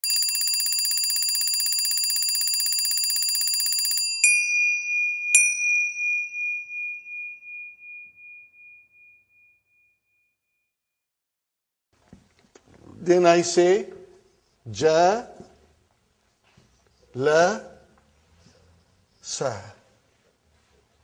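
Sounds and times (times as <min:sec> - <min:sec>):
bell trilling rapidly: 0:00.0 - 0:08.8.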